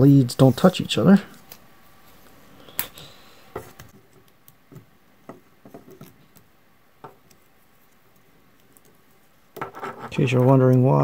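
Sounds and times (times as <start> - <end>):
fingers handling wire leads: 5.7 - 11.0.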